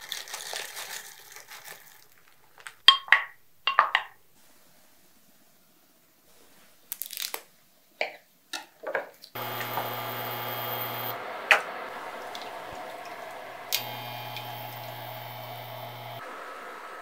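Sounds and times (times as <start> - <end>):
kitchen appliance humming: 9.4 - 17.0.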